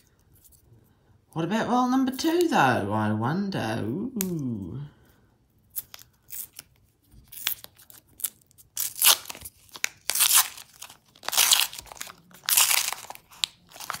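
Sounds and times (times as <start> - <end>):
paper wrapper tearing: 5.7 - 14.0.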